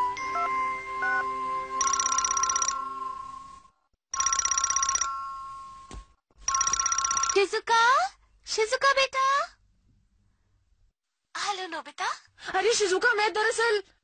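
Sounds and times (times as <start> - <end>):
telephone bell ringing: 0.2 - 3.5, 4.1 - 7.4.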